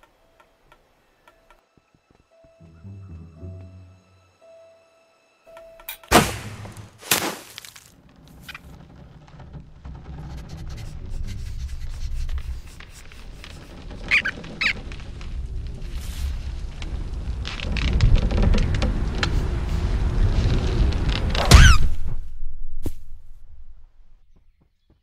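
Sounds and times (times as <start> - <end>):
short high squeaks: 13.0 - 14.9
low rumble: 14.8 - 24.3.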